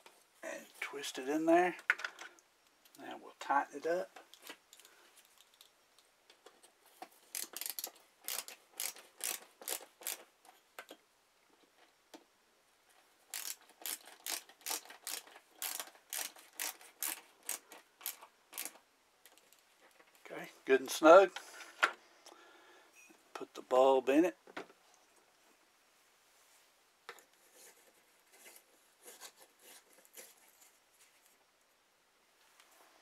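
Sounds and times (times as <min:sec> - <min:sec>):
ratcheting screwdriver clicking: 0:07.3 - 0:10.2, 0:13.3 - 0:19.4.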